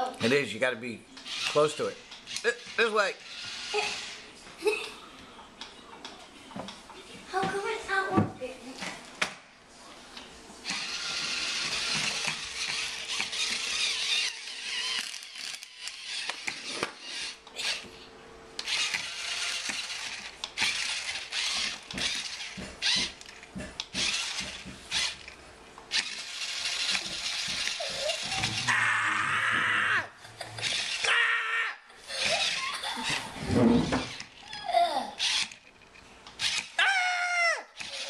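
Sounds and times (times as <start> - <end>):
small geared motor whirring: 1.2 - 4.3, 10.6 - 17.9, 18.6 - 29.2, 30.6 - 31.1, 32.1 - 37.0, 37.8 - 38.0.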